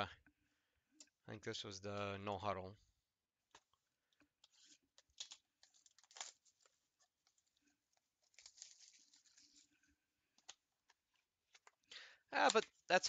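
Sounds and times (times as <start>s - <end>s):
packaging tearing and crinkling: 4.5s - 9.7s.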